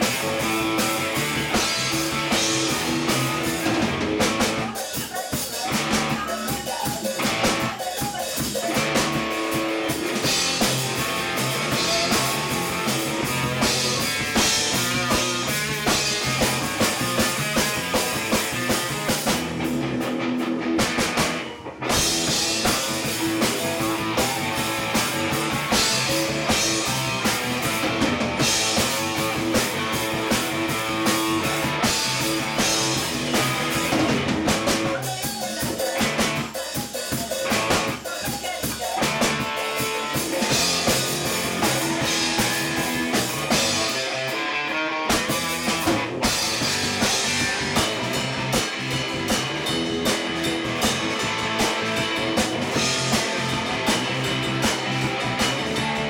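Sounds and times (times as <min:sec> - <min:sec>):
bass guitar: 0:00.0 - 0:56.0
drum kit: 0:00.0 - 0:56.0
electric guitar: 0:00.0 - 0:56.0.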